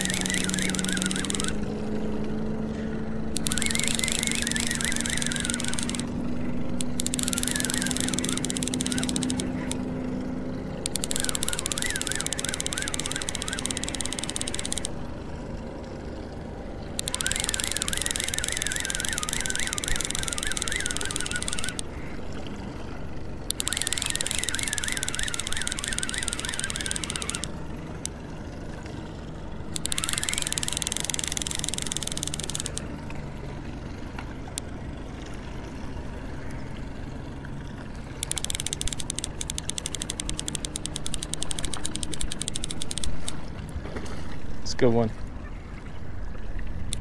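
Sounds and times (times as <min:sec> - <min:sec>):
fishing reel clicking rattle: 0:00.0 - 0:02.2, 0:02.8 - 0:09.9, 0:10.5 - 0:15.2, 0:16.9 - 0:21.9, 0:23.4 - 0:28.3, 0:29.6 - 0:32.9, 0:38.0 - 0:43.5
steady low hum: 0:00.0 - 0:47.0.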